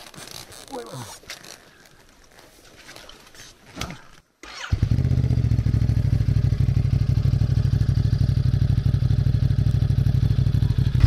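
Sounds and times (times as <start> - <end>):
motorcycle engine idling: 4.7 - 11.0.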